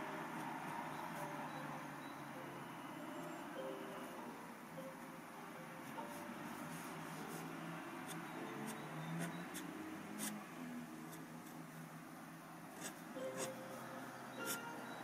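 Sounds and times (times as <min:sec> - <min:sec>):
pen nib scratching on paper: 0:06.7 - 0:10.4, 0:12.8 - 0:13.6.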